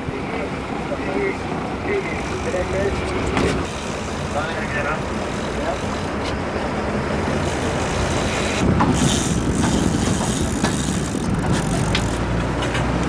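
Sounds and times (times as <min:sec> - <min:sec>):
boat engine running: 0:00.0 - 0:13.0
wind and water rushing: 0:00.0 - 0:13.0
sharp clicks and knocks: 0:08.7 - 0:13.0.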